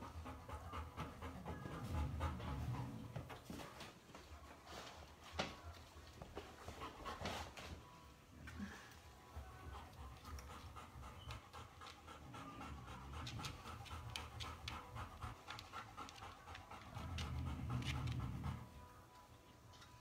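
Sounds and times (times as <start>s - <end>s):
puppies panting: 0.0s - 5.2s, 6.4s - 7.8s, 9.4s - 18.9s.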